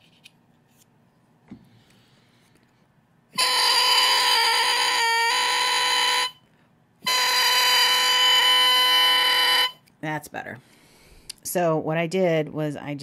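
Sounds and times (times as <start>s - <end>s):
person breathing: 1.6s - 2.8s, 10.6s - 11.3s.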